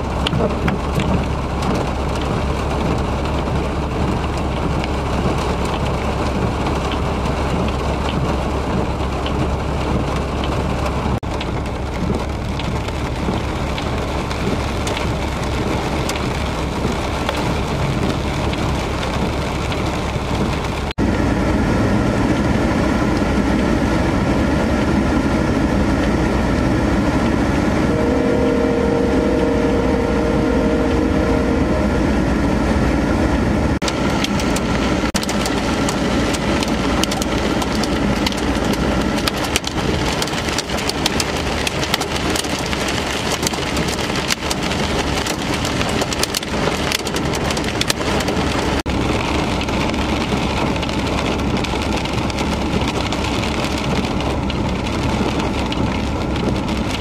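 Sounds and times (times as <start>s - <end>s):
steady rain falling: 0.0s - 57.0s
steady droning hum: 21.0s - 33.8s.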